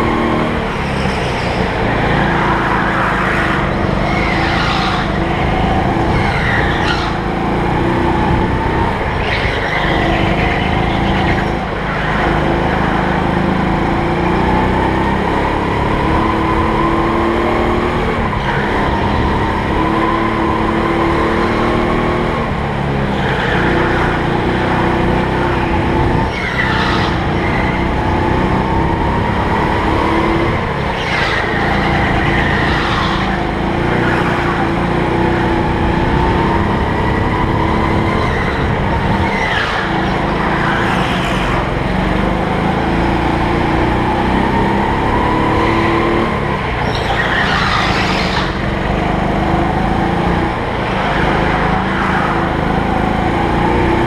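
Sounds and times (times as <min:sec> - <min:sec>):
go-kart engine revving: 0:00.0 - 0:54.0
tyres squealing: 0:00.7 - 0:07.5, 0:23.1 - 0:28.8, 0:30.5 - 0:41.8, 0:45.5 - 0:49.2.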